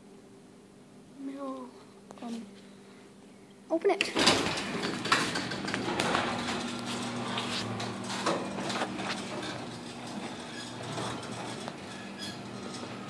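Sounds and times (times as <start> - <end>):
garage door clattering on tracks: 4.0 - 13.0
garage door opener motor hum: 4.0 - 13.0.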